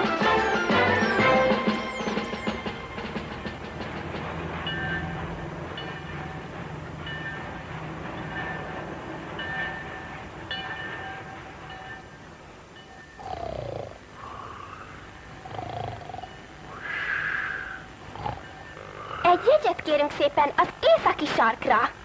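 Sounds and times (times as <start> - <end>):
steam train rumble: 0.0 - 22.0
man snoring: 13.2 - 19.2.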